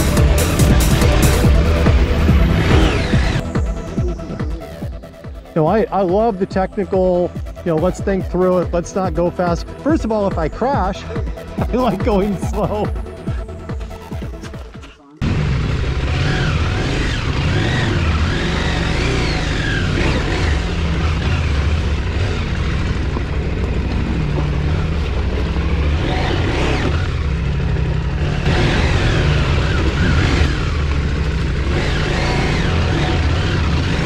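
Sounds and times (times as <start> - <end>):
motorcycle engine revving: 0.0 - 34.0.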